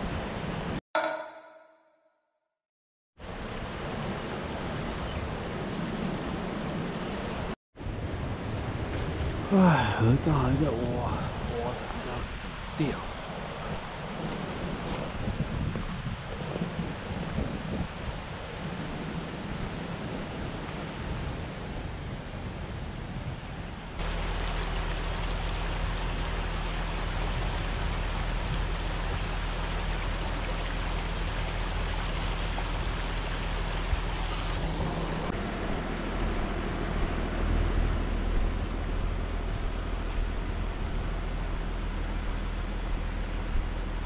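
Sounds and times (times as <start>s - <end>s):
wind buffeting microphone: 10.8s - 24.1s
stream running over rocks: 24.0s - 35.3s
low steady hum: 24.0s - 44.0s.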